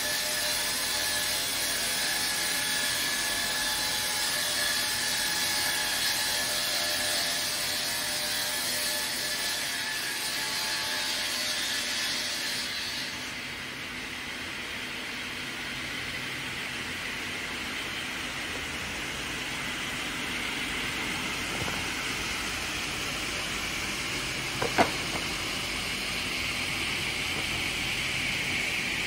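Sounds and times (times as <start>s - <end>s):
circular saw cutting log: 16.8s - 29.0s.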